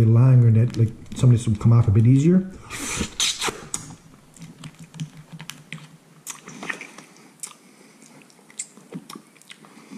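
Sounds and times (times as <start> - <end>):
wet eating smacks: 3.2 - 9.8.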